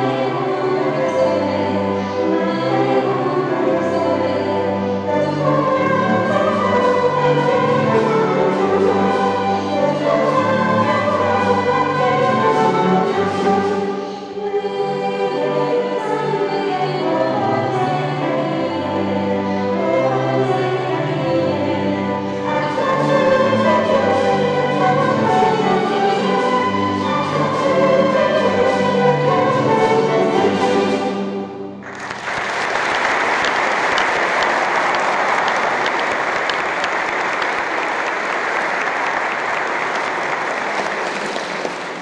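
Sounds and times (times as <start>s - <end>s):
ensemble singing and playing: 0.0s - 42.0s
audience applause: 31.8s - 42.0s.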